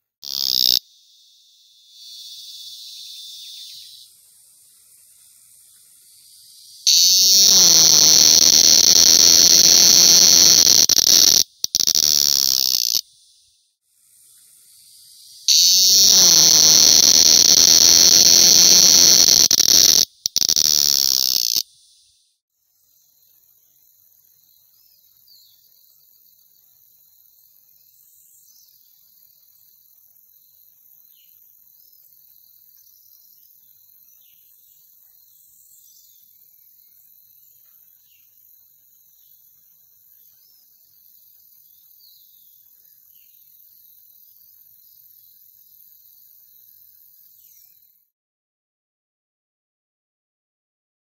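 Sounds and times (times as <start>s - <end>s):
cicada buzzing: 0.2s - 4.1s, 6.6s - 13.1s, 15.4s - 21.7s.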